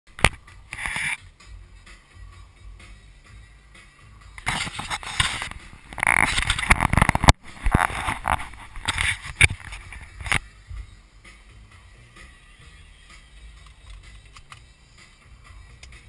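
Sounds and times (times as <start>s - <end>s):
camera handling rubbing crackling: 0.2s - 1.2s, 4.4s - 10.4s.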